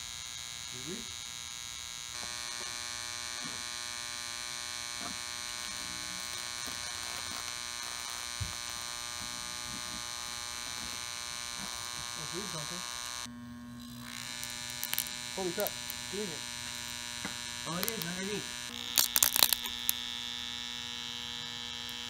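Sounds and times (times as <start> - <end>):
electrical buzz with high whine: 0.0 - 22.0.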